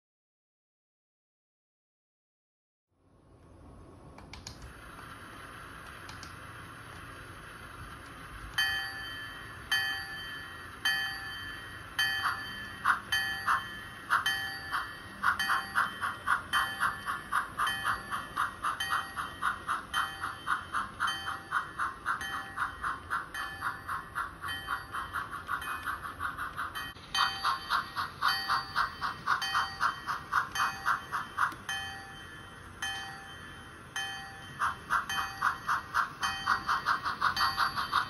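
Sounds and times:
steam hiss: 4.6 - 38.0
steam locomotive chuffing: 4.6 - 38.0
locomotive bell ringing: 8.3 - 38.0.

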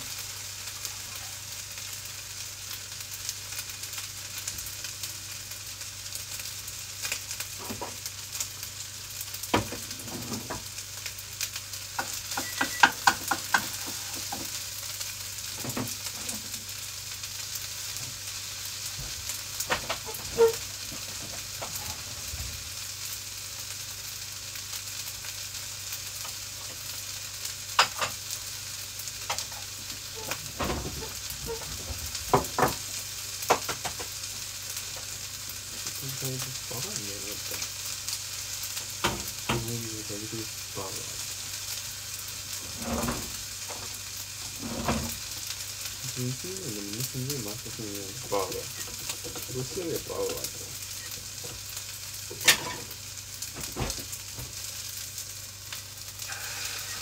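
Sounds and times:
rice sizzling in a pan: 0.0 - 57.0
utensil scraping a pan: 12.0 - 14.5, 20.0 - 20.7, 42.6 - 45.2, 52.3 - 53.0, 56.2 - 57.0.

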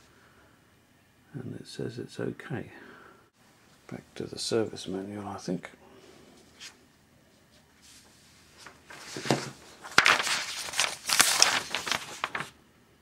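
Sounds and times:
rustling and handling noises: 6.4 - 12.6.

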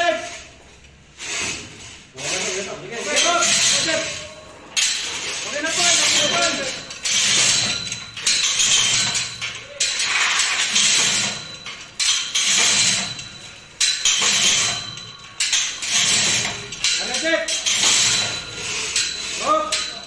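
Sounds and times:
steel chain rattling: 2.2 - 20.0.

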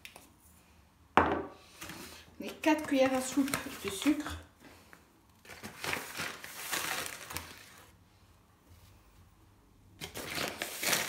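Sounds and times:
plastic bag crinkling: 2.5 - 4.3, 5.4 - 7.9, 10.0 - 11.0.

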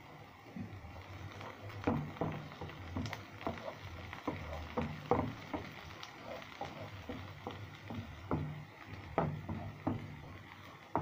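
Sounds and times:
spatula scraping frying pan: 1.3 - 11.0.

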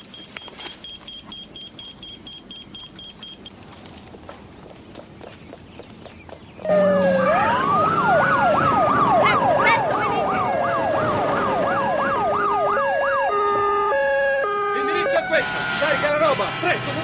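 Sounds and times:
fast yelping siren: 6.6 - 16.4
slow wailing siren: 6.6 - 16.6
two-tone hi-lo siren: 6.6 - 16.6.

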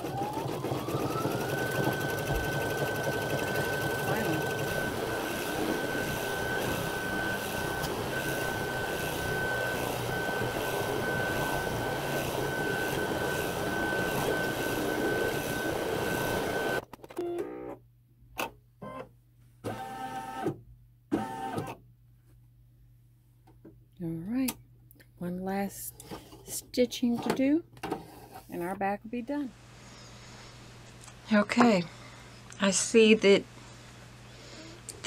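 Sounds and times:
embroidery machine whirring: 0.0 - 16.8.

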